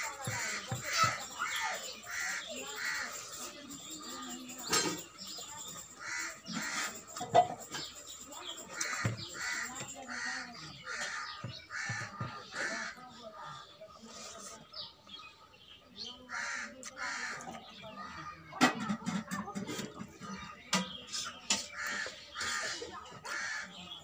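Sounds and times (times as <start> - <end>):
crows cawing: 0.0 - 3.4, 6.0 - 7.2, 8.7 - 13.6, 16.3 - 17.5, 21.7 - 24.0.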